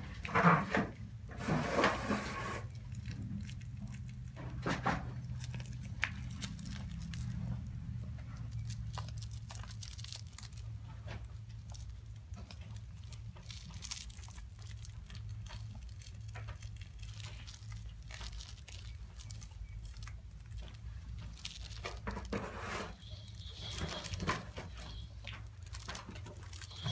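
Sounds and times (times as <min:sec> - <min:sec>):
cat rustling and scratching toy: 0:00.0 - 0:26.9.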